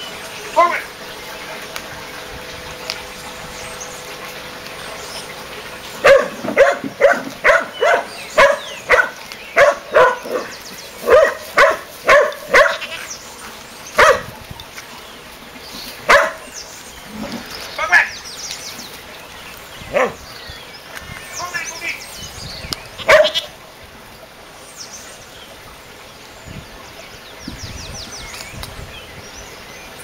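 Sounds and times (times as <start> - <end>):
dog barking: 6.0 - 13.0, 14.0 - 14.3, 16.1 - 16.5, 19.9 - 20.2, 23.0 - 23.5.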